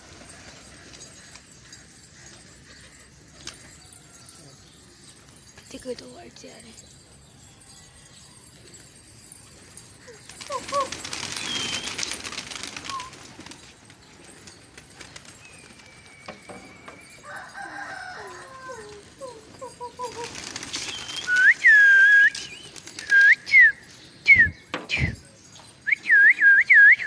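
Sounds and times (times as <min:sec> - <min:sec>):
pigeons flapping wings: 0:00.0 - 0:01.8, 0:10.0 - 0:23.7.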